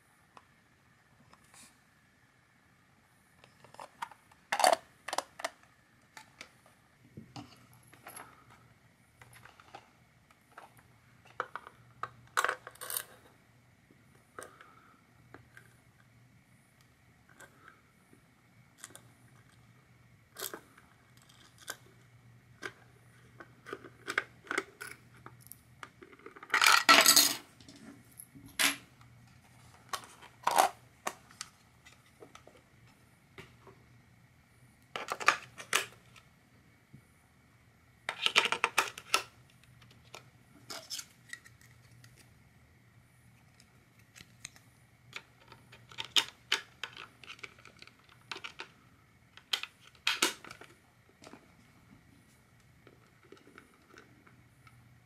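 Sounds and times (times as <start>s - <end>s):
plastic cover clicking and rattling: 3.4s - 6.5s, 38.1s - 42.2s, 44.2s - 48.7s, 49.4s - 51.4s.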